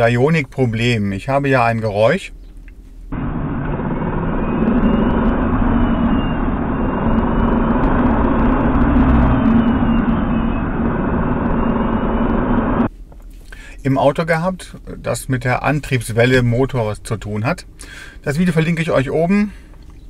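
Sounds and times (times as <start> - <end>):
electric car drive unit rumble: 0.0 - 20.0
faint motor whine: 2.4 - 13.9.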